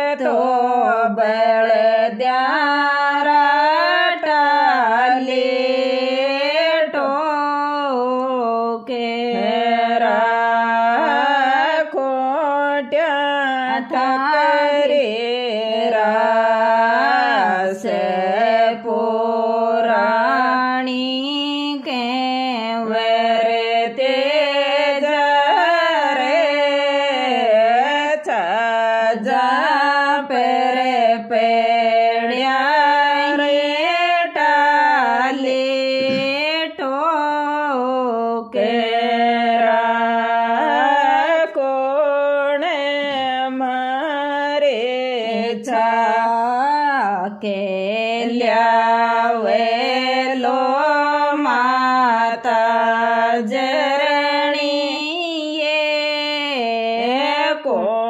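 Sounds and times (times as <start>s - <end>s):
woman singing folk song: 0.0s - 58.0s.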